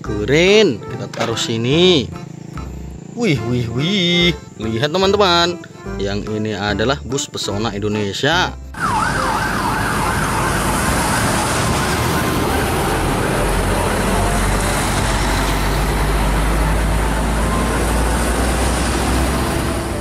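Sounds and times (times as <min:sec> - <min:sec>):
bus diesel engine rumbling: 0:00.0 - 0:20.0
street traffic: 0:00.0 - 0:20.0
fast warbling siren: 0:08.8 - 0:19.8.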